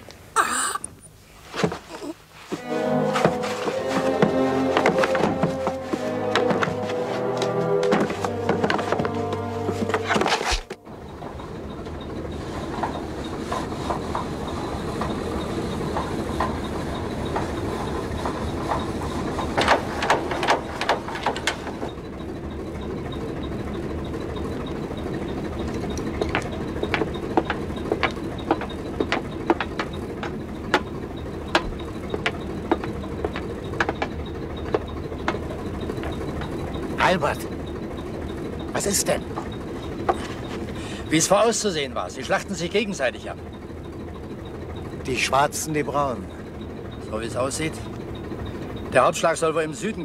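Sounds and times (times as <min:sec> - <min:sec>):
boat engine running: 0:02.8 - 0:50.0
sharp clicks and knocks: 0:18.2 - 0:22.0, 0:25.6 - 0:36.6.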